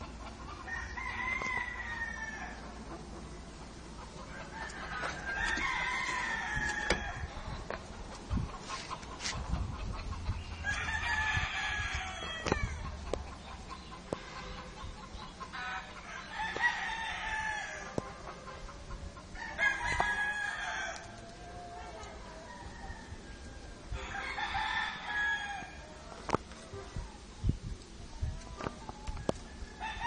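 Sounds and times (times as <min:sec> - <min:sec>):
rooster crowing: 0:00.6 - 0:02.7, 0:04.3 - 0:07.4, 0:10.6 - 0:12.8, 0:15.6 - 0:18.0, 0:19.3 - 0:25.9, 0:29.4 - 0:30.0.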